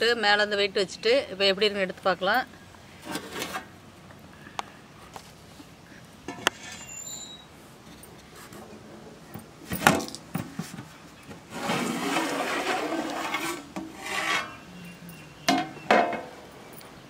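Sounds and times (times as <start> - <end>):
metal lid scraping on pot rim: 11.6 - 14.6
metal lid clanking: 15.5 - 16.4.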